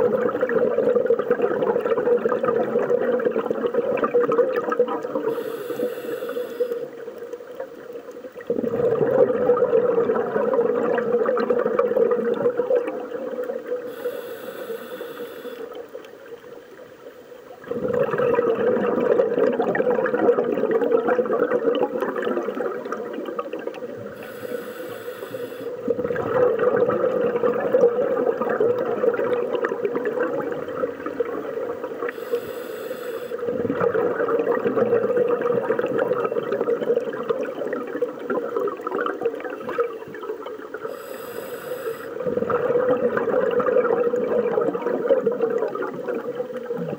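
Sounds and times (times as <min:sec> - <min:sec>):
regulator hissing inhale: 0:05.3 - 0:07.0, 0:13.8 - 0:15.8, 0:24.1 - 0:25.8, 0:32.1 - 0:33.5, 0:40.8 - 0:42.2.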